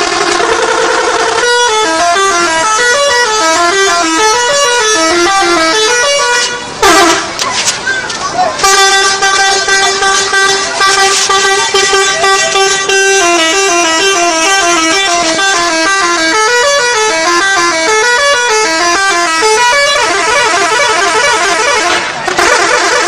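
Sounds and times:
multi-tone musical bus horn: 0.0 - 7.4, 8.6 - 23.0.

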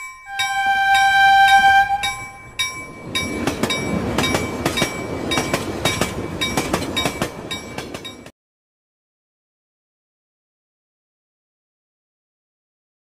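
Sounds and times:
train wheels clacking over rail joints: 0.6 - 8.3.

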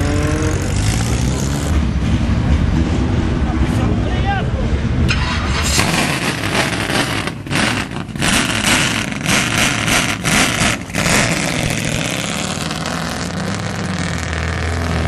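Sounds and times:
race car engine accelerating: 5.1 - 15.0.

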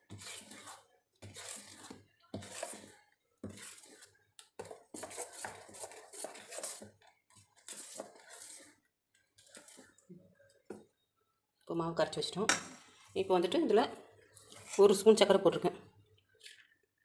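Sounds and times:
metal spoon scraping a steel bowl: 0.0 - 8.8.

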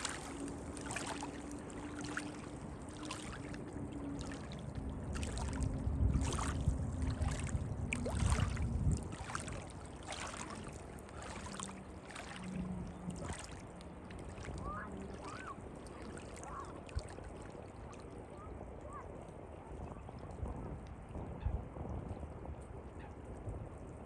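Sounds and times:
low rumble: 0.0 - 15.9
waves lapping against rocks: 0.0 - 20.8
distant boat engine hum: 0.0 - 24.0.

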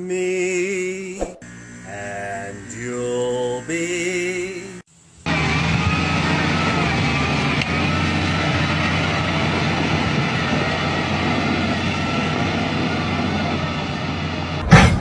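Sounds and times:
thin high whine: 0.3 - 9.4
wheel loader diesel engine: 5.2 - 15.0.

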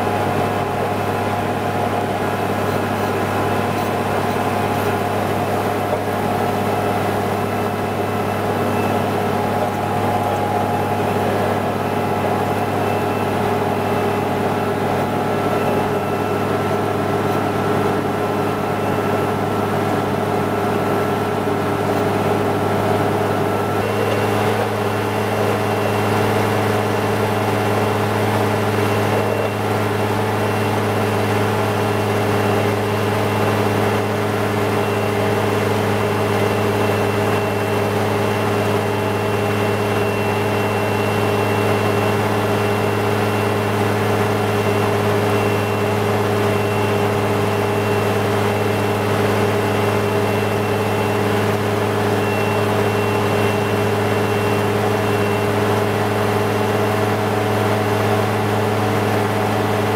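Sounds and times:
faint high whine: 0.0 - 19.4
diesel engine humming: 0.0 - 59.9.

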